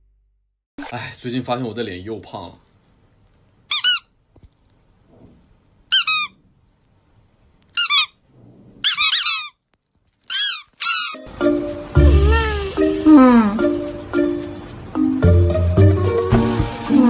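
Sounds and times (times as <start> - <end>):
squeaky toy squeaking: 3.7 - 4.1, 5.9 - 6.4, 7.8 - 8.2, 8.8 - 9.6, 10.2 - 11.3, 11.9 - 13.5.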